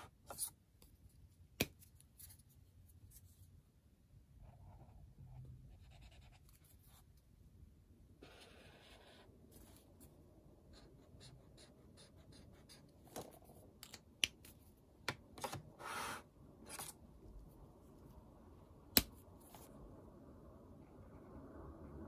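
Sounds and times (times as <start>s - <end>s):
highlighter scratching on paper: 4.4s - 7.0s, 8.2s - 9.9s, 10.7s - 12.9s, 15.8s - 16.3s.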